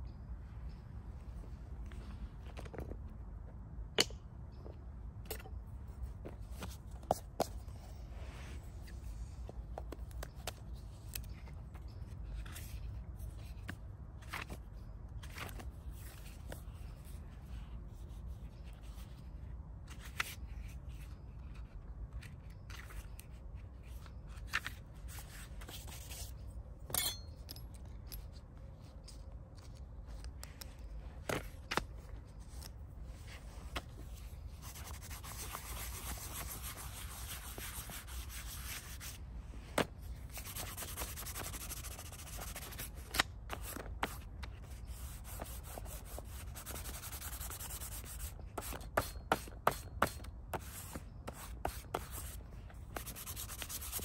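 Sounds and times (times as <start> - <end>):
notebook pages turning: 9.8 - 16.7, 19.9 - 26.3
hand rubbing on paper: 40.3 - 42.9.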